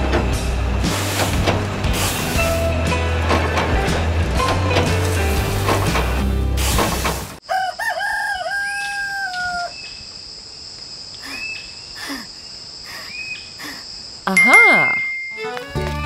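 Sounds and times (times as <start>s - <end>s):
music: 0.0s - 7.1s, 15.2s - 16.0s
rooster crowing: 7.4s - 9.8s.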